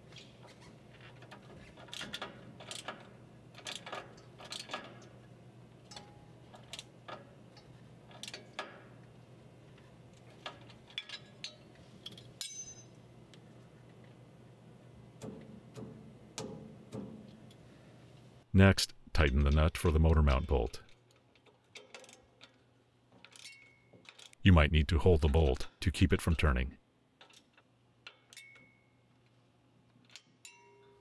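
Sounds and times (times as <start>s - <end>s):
high metallic ring: 12.4s - 13.0s, 30.2s - 31.0s.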